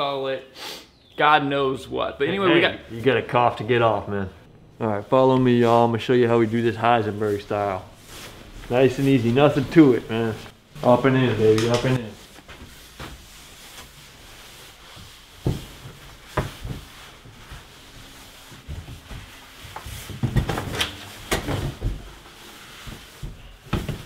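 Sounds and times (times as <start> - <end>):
rustling and rubbing: 4.8 - 24.0.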